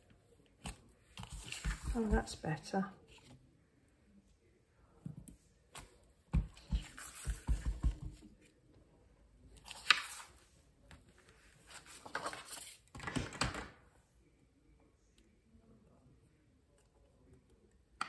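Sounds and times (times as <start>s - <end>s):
paper rustling: 0.6s - 2.2s, 9.6s - 10.4s, 11.2s - 13.0s.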